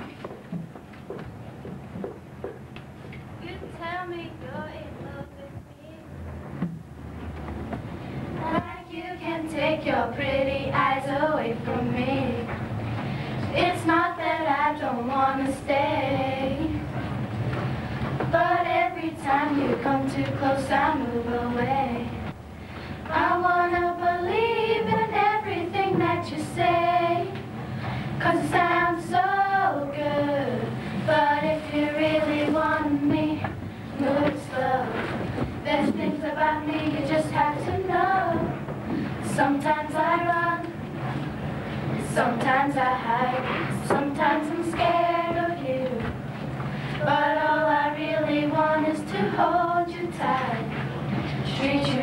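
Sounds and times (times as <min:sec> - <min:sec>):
girl singing: 0:03.4 - 0:06.1, 0:08.4 - 0:12.5, 0:13.6 - 0:16.8, 0:18.3 - 0:22.2, 0:23.1 - 0:27.4, 0:28.2 - 0:35.0, 0:35.6 - 0:40.7, 0:42.1 - 0:46.0, 0:47.0 - 0:50.7, 0:51.5 - 0:52.0.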